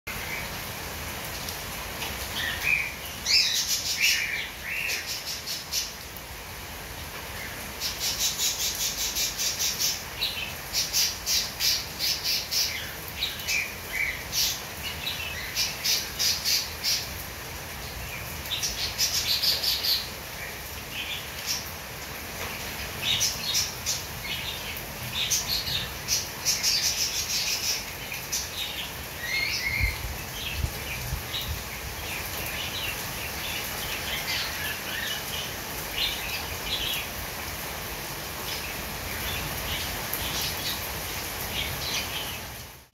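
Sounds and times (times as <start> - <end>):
rain hiss: 0.1 - 42.9
small birds chirping and squawking: 2.2 - 6.1, 7.3 - 17.2, 17.9 - 21.8, 22.5 - 37.3, 38.4 - 42.6.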